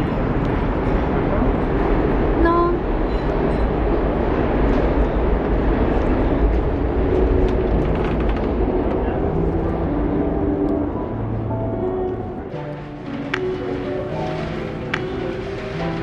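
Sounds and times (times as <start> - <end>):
city street rumble: 0.0 - 16.0
soft background music: 8.7 - 16.0.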